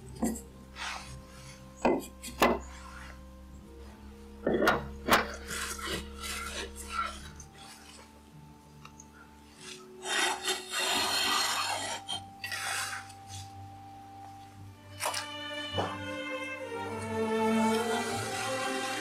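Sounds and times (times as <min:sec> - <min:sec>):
faint classical music: 0:00.0 - 0:19.0
metal scraping and rubbing: 0:04.4 - 0:08.2, 0:09.5 - 0:13.6.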